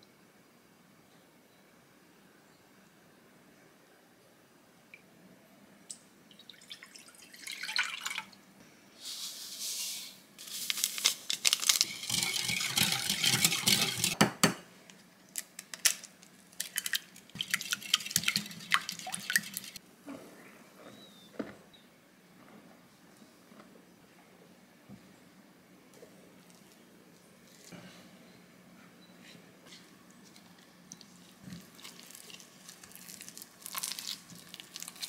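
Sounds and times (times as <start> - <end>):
liquid sloshing: 11.6 - 14.2, 16.6 - 19.8
whisk clinking against glass bowl: 11.9 - 14.2.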